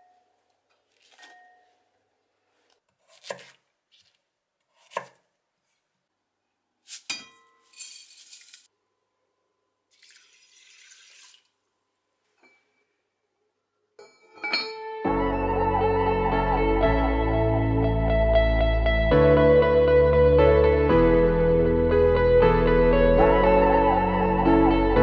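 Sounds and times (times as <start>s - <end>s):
knife cutting onto wooden board: 3.0s - 3.6s, 4.7s - 5.2s
ringing clink: 14.0s - 14.9s
guitar background music: 14.8s - 25.0s.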